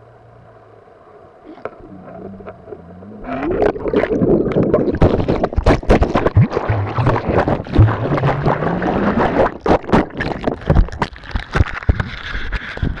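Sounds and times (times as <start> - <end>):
low hum rising in pitch: 0.0 - 5.6, 6.2 - 9.6
water rushing and sloshing: 1.6 - 11.8.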